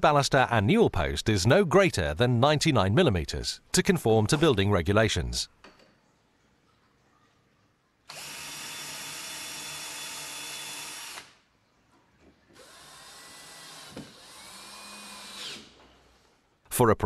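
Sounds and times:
power drill driving screws: 8.1 - 11.4, 12.5 - 15.8.

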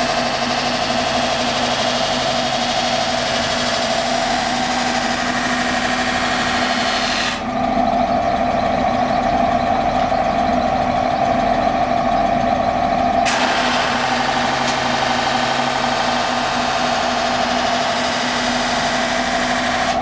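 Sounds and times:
steady whine: 0.0 - 20.0
polishing wheel humming: 13.2 - 20.0.

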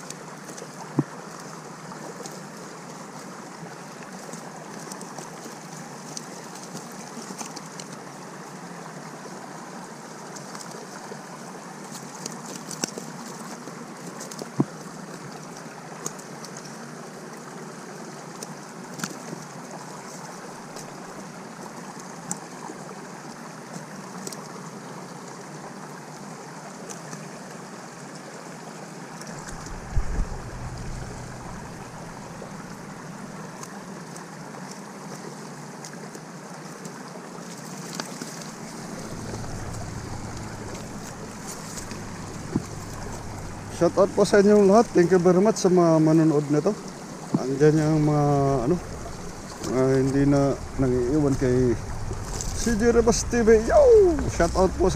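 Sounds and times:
flowing river water: 0.0 - 54.9.

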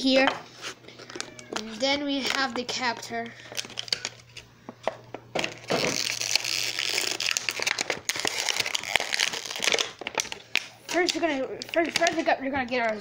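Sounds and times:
plastic packaging crinkling: 3.4 - 4.5, 5.4 - 12.3.

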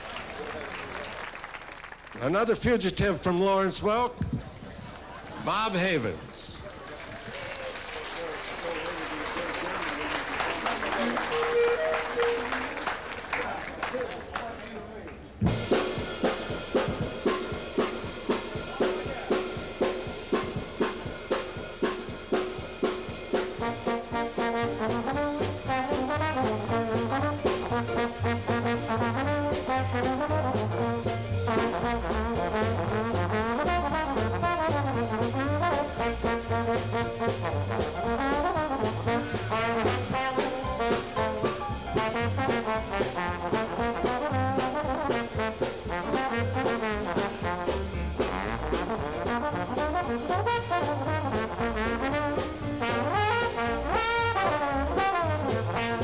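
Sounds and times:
jazz band rhythm section: 0.0 - 4.2, 5.0 - 56.0
slide trombone jazz solo: 10.4 - 13.0, 15.4 - 56.0.

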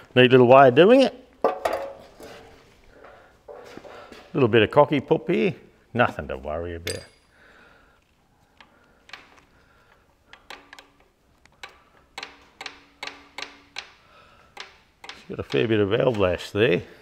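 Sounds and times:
metal rocker arms clicking: 8.5 - 16.6.

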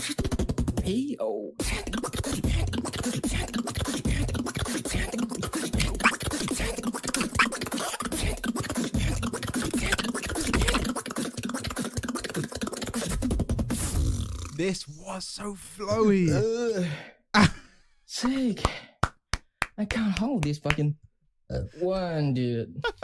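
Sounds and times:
beatboxing into a microphone: 0.0 - 14.6.

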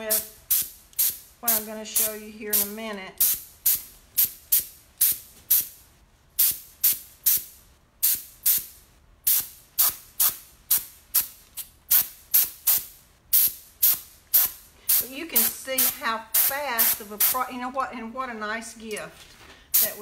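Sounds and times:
compressed air puffs: 8.0 - 17.0, 19.3 - 20.0.

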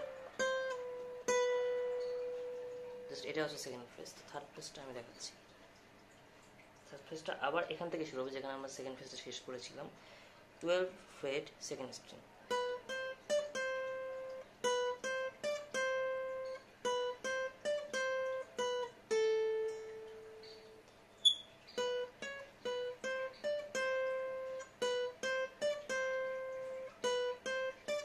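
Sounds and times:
acoustic guitar melody: 0.0 - 5.0, 12.4 - 28.0.

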